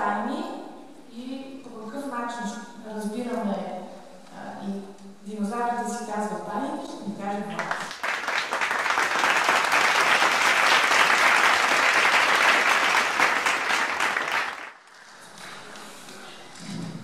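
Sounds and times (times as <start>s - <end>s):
audience applauding: 7.6s - 15.1s.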